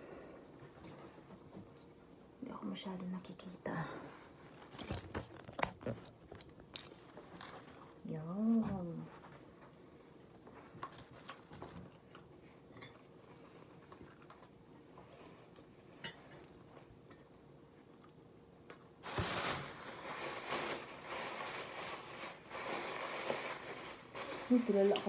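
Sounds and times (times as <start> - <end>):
plastic bag crinkling: 4.4 - 7.9, 19.0 - 25.0.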